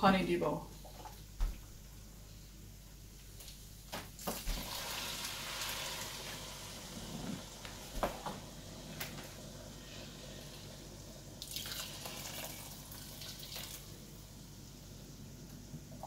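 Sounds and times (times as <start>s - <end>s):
water pouring: 4.2s - 7.5s, 11.4s - 14.0s
water sizzling in hot oil: 4.2s - 14.1s.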